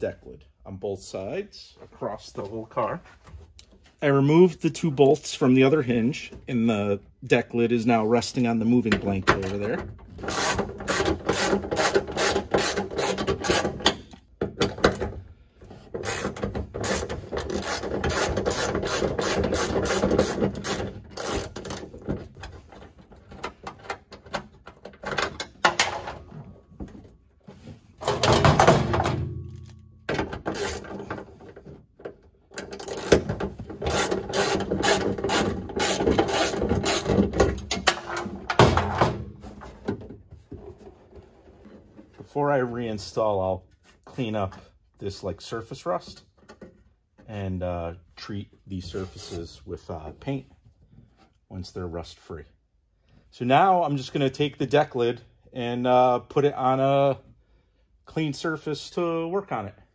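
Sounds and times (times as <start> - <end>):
hand ratchet clicking: 16.0 - 21.8, 32.6 - 33.3, 33.9 - 37.2.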